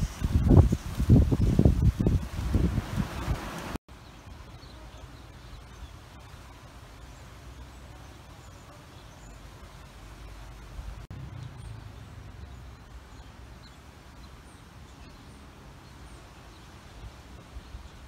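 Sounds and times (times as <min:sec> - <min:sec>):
wind rumbling on microphone: 0:00.0 - 0:03.8.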